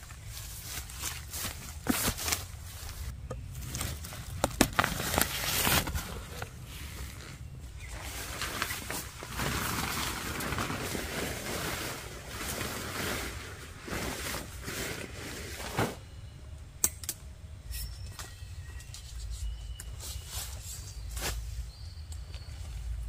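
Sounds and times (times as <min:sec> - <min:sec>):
tent fabric rustling: 0:00.0 - 0:16.0
birds chirping: 0:02.7 - 0:10.0, 0:16.0 - 0:23.0.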